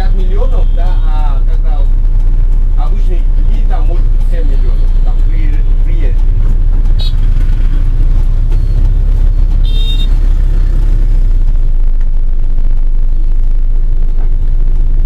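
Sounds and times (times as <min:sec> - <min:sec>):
bus rumbling: 0:00.0 - 0:15.0
motorbike and car traffic: 0:00.0 - 0:15.0
high-pitched horn beep: 0:00.4 - 0:01.2, 0:07.0 - 0:07.4, 0:09.5 - 0:10.4.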